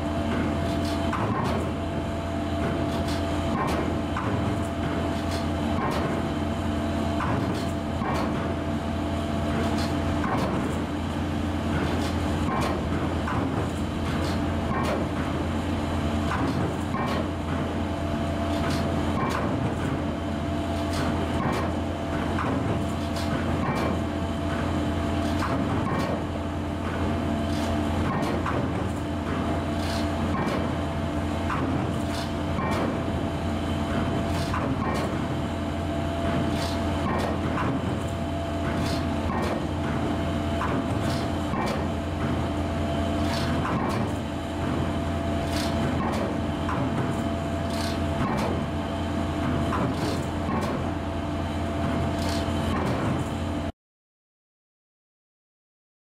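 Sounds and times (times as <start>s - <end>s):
piling rig machinery drone: 0.0s - 53.7s
pile hammer striking concrete pile: 11.7s - 15.3s, 40.6s - 42.5s.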